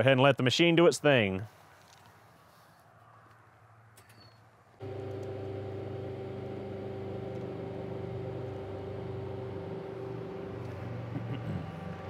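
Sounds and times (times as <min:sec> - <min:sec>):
compressor humming: 0:04.8 - 0:12.0.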